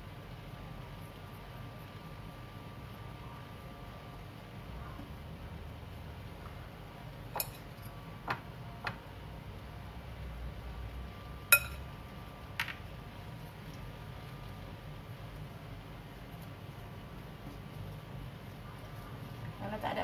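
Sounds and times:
low steady hum: 0.0s - 20.0s
spoon clinking against dishes: 7.4s - 7.7s, 11.5s - 11.9s.

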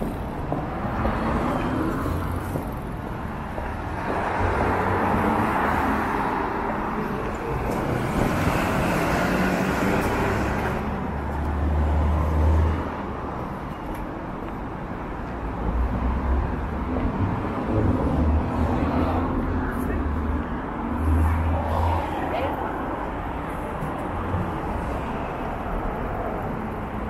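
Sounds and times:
cars and motorcycles passing: 0.0s - 13.7s.

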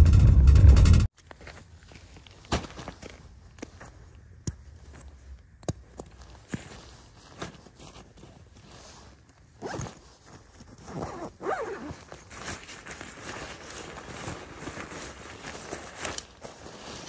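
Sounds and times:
light clicks of handled gear: 1.2s - 17.0s
rustling: 4.7s - 17.0s
zipper pulled: 9.6s - 13.9s.

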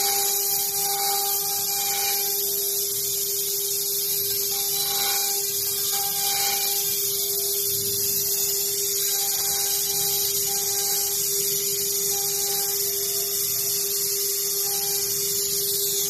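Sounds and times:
router spindle whining and cutting: 0.0s - 7.6s.

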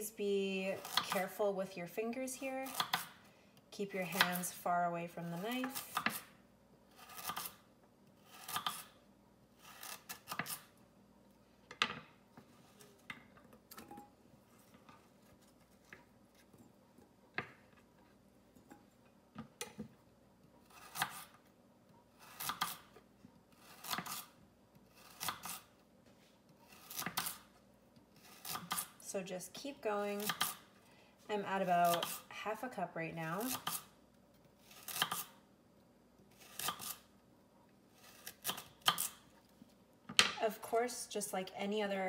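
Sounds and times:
knife slicing carrot on board: 7.0s - 7.6s, 8.2s - 9.0s, 9.6s - 10.7s, 20.6s - 21.4s, 22.2s - 23.0s, 23.6s - 24.3s, 25.0s - 25.7s, 26.7s - 27.5s, 28.2s - 29.0s, 30.2s - 30.6s, 33.4s - 33.9s, 34.6s - 35.4s, 36.4s - 37.1s.

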